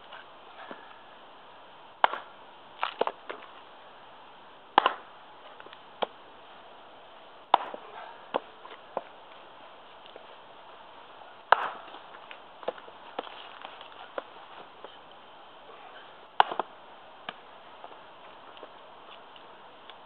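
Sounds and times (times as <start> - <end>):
axe chopping log: 2.0 - 3.5, 4.7 - 6.2, 7.5 - 9.2, 11.4 - 15.0, 16.3 - 18.0.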